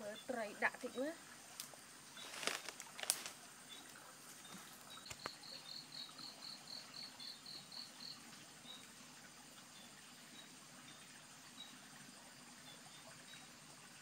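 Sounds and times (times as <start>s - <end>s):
high insect chirps: 0.0s - 9.0s.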